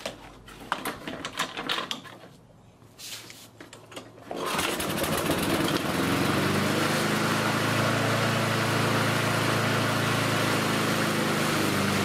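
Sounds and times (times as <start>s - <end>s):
handling clicks and knocks: 0.0s - 2.3s
lawnmower engine running: 4.2s - 12.0s.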